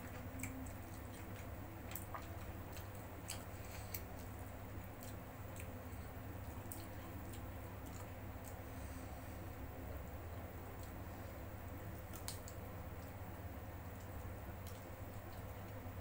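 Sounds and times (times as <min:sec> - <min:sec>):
chewing: 0:00.0 - 0:08.8, 0:10.4 - 0:13.2, 0:13.8 - 0:15.9
steady low hum: 0:00.0 - 0:16.0
fingers picking through food: 0:11.9 - 0:13.2.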